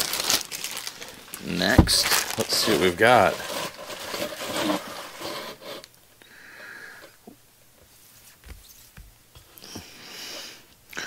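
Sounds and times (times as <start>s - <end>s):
plastic bags rustling: 0.0s - 5.9s
comic books sliding across table: 1.8s - 5.9s.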